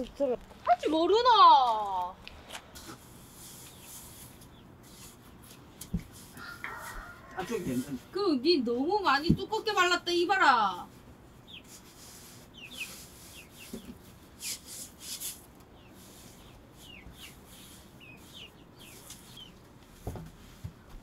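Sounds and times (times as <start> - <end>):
chickens peeping: 11.3 - 20.6.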